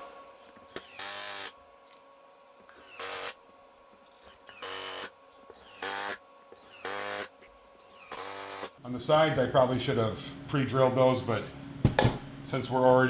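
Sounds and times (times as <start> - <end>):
cordless drill driving screws: 0.7 - 1.5, 2.7 - 3.4, 4.2 - 8.8.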